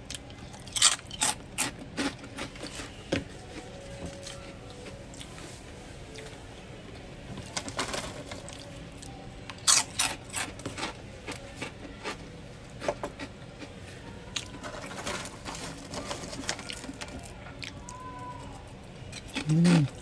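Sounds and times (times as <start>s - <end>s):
chewing fries: 0.0s - 6.4s, 7.4s - 20.0s
faint steady hum: 0.0s - 20.0s.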